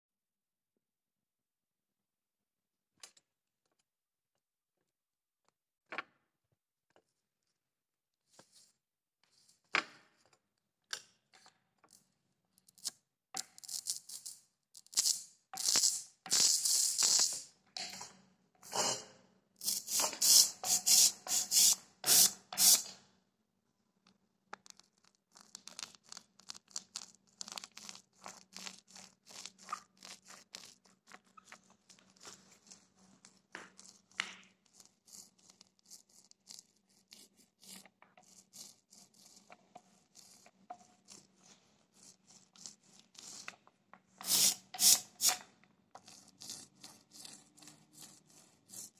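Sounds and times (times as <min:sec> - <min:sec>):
roller clicking over plastic beads: 0:13.6 - 0:17.5.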